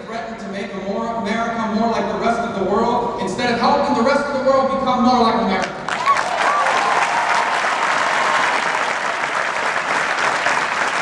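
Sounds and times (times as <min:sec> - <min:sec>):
crowd applauding: 0:05.8 - 0:11.0.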